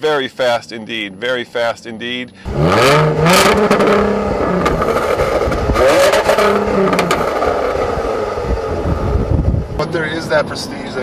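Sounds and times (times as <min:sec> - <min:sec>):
car engine revving: 0:02.3 - 0:11.0
exhaust cracks and pops: 0:03.4 - 0:08.0.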